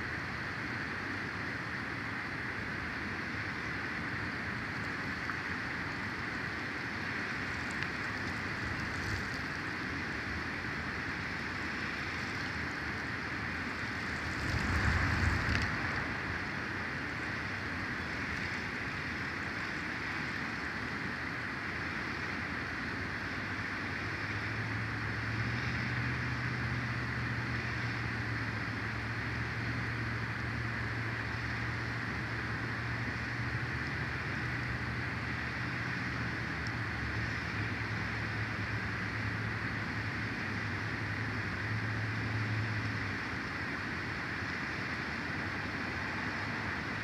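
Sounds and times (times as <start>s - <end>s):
low engine hum: 0.0s - 47.0s
wind hissing through pine branches: 0.0s - 47.0s
wind buffeting microphone: 13.8s - 18.8s.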